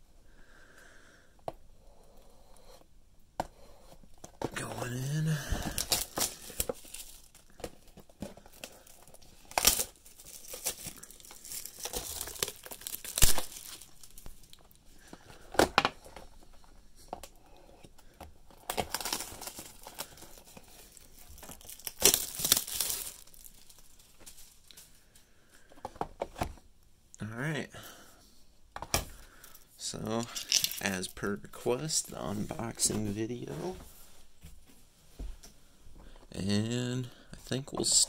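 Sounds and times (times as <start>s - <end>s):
shrink-wrap crinkling and tearing: 4.6s - 14.8s, 18.5s - 24.8s, 29.4s - 32.9s.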